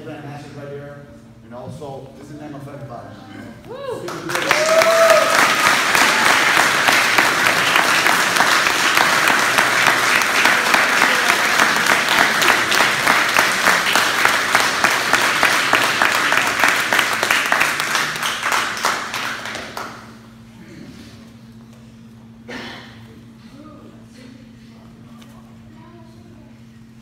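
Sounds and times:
people clapping: 3.9s - 20.3s.

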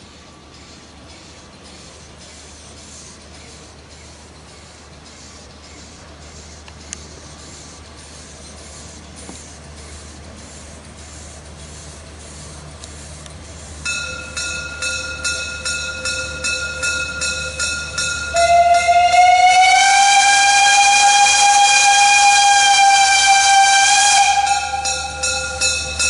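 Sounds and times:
steam locomotive chuffing: 0.0s - 26.0s
steam whistle blast: 13.9s - 26.0s.

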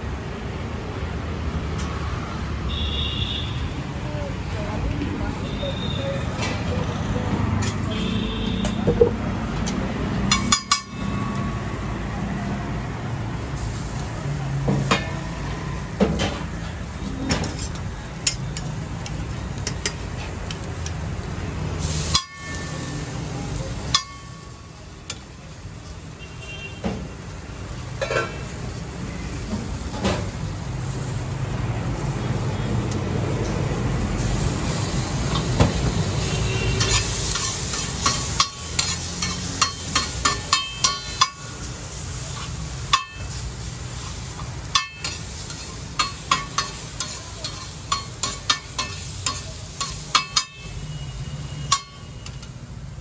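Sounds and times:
food sizzling on iron griddle: 10.0s - 53.0s
spatula clacking and scraping: 17.2s - 21.0s, 36.7s - 50.7s.

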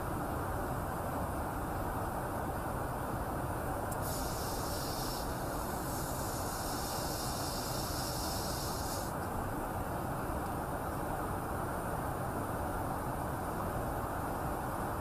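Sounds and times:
high hiss: 3.9s - 9.3s.

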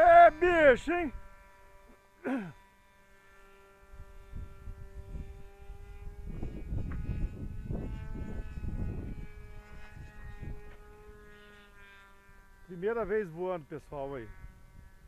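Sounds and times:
model airplane engine buzzing: 0.0s - 15.0s
wind rumble on microphone: 3.9s - 11.4s, 14.2s - 15.0s.

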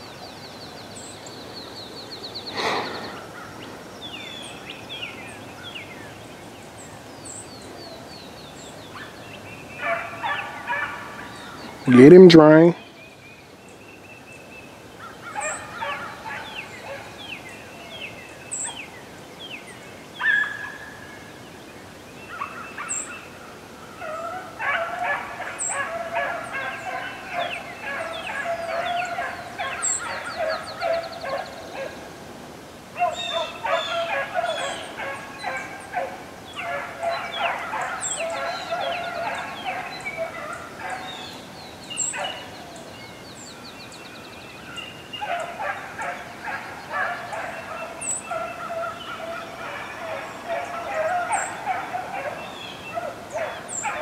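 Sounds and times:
hounds baying: 9.8s - 12.1s, 15.2s - 17.2s, 24.0s - 32.0s, 33.0s - 41.4s, 42.0s - 42.5s, 45.2s - 54.0s.

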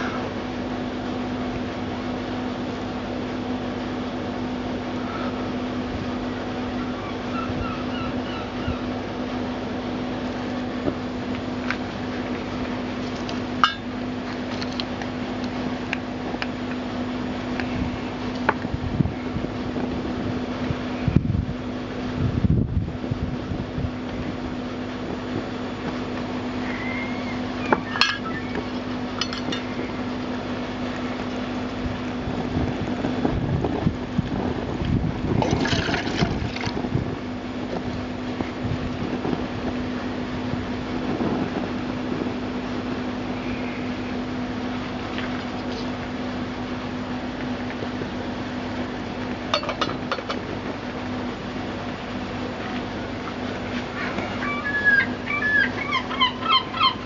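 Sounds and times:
low hum and hiss: 0.0s - 57.0s
wind buffeting microphone: 17.7s - 26.1s, 31.5s - 43.1s
water poured into tin can: 35.4s - 36.7s.

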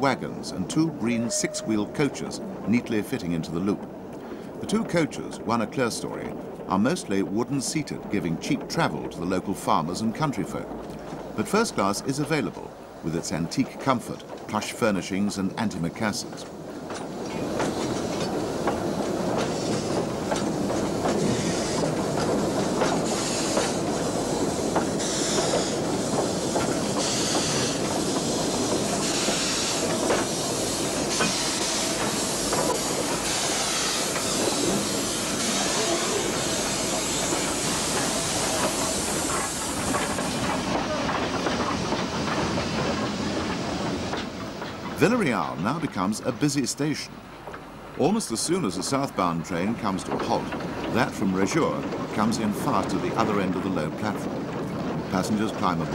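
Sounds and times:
train wheels clicking over rail joints: 0.0s - 55.9s
steam hiss: 17.3s - 44.4s.

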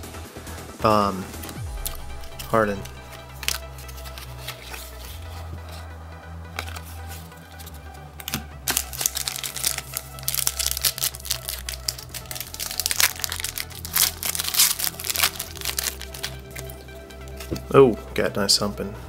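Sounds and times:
card pack wrapper crinkling: 1.8s - 5.8s, 6.6s - 17.7s.

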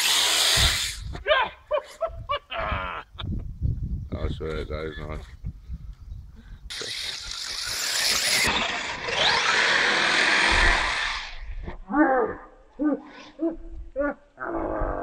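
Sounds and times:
toy car electric motor whining: 0.0s - 1.1s, 6.7s - 11.4s
person exclaiming loudly: 1.2s - 1.8s, 11.9s - 14.3s
tyres churning loose dirt: 6.7s - 11.4s.

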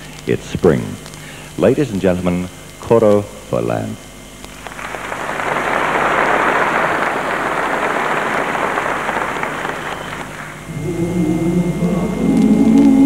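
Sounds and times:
audience applauding: 4.6s - 10.7s.

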